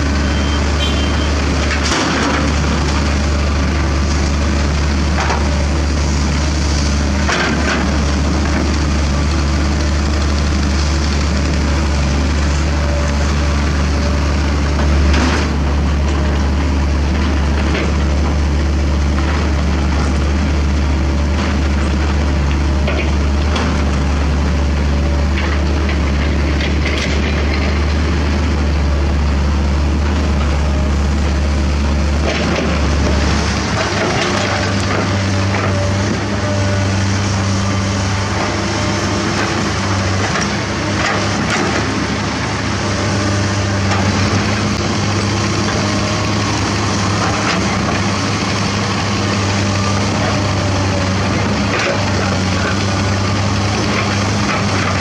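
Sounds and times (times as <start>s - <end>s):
diesel excavator engine: 0.0s - 55.0s.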